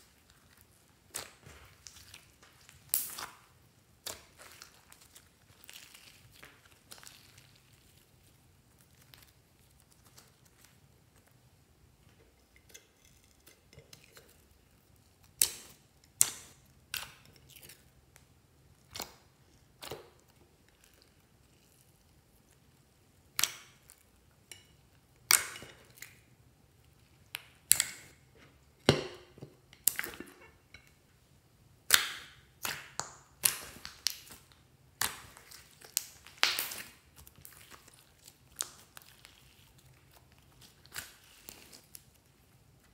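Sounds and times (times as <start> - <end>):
hands squishing slime: 0.0 - 11.4, 31.8 - 42.9.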